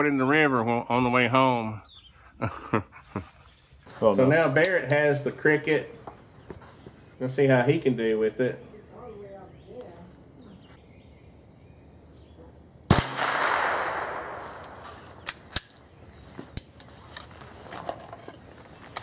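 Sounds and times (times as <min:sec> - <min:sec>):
rifle shot with echo: 0:12.9 - 0:15.5.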